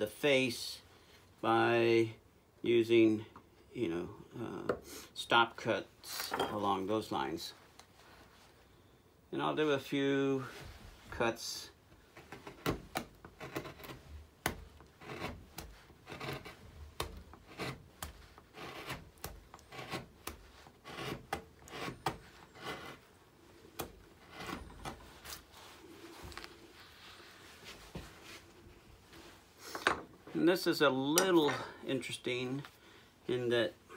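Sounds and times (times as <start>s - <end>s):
gouge scraping through wood: 12.1s - 25.5s.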